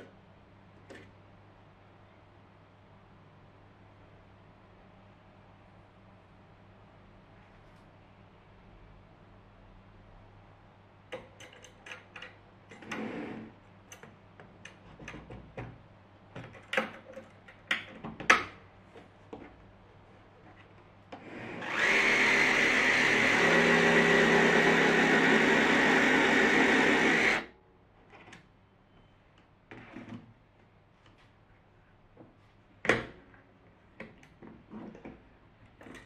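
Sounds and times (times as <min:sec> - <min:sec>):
power tool motor whining: 0:21.4 - 0:27.5.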